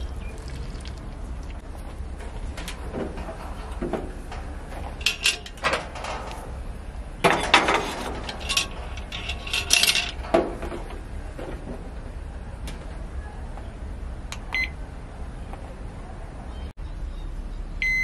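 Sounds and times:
cast iron pot clanking on grill: 0:02.2 - 0:06.6, 0:07.2 - 0:11.8.

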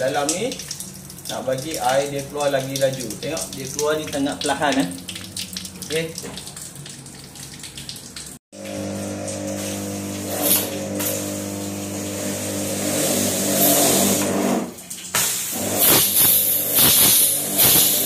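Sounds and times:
pressure washer motor and pump: 0:08.6 - 0:18.0
hissing water spray: 0:08.8 - 0:18.0.

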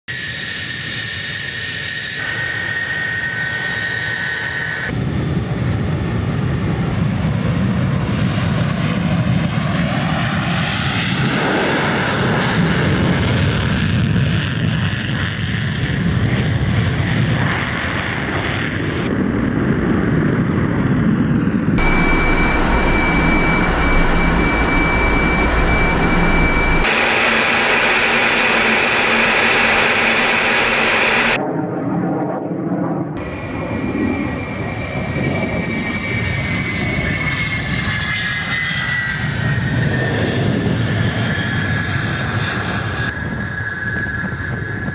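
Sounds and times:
loud jet noise with high whine: 0:00.1 - 0:16.6, 0:21.8 - 0:31.4
jet whine falling in pitch: 0:21.8 - 0:31.4.

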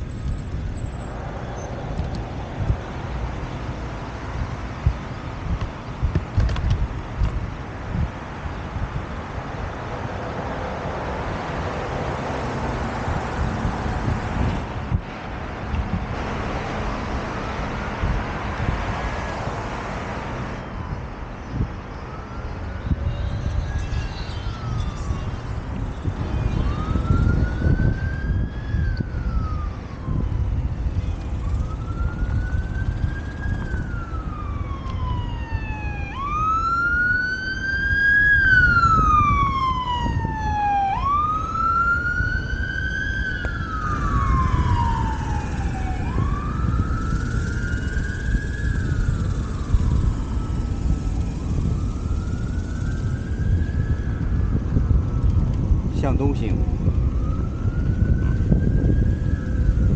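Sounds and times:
emergency siren wailing: 0:00.0 - 0:05.6, 0:07.8 - 0:59.9
wind rumble on microphone: 0:00.0 - 0:59.9.

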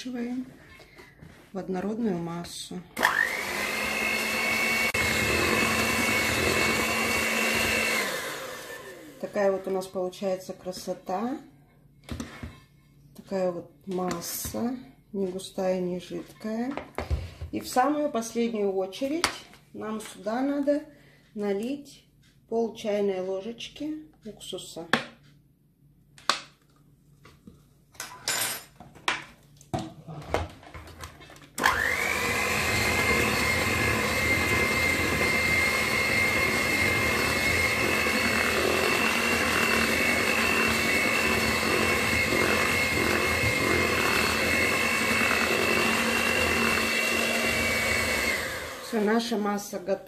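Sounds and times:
electric hand mixer whining: 0:03.0 - 0:09.8, 0:31.6 - 0:49.6.

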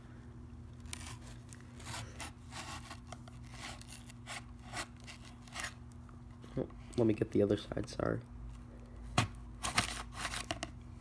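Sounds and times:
knife cutting cardboard: 0:00.8 - 0:05.8.

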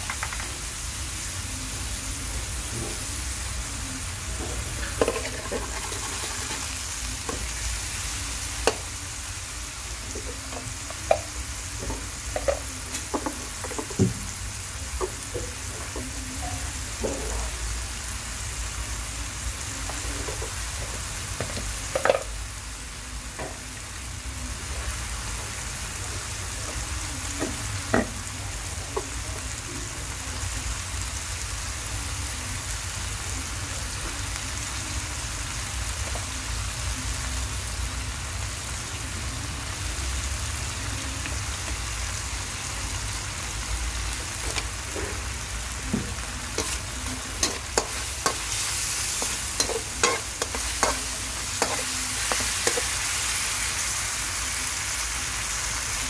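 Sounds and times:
meat sizzling in a wok: 0:00.0 - 0:56.0
spatula scraping and knocking wok: 0:04.8 - 0:06.7, 0:46.4 - 0:53.5.

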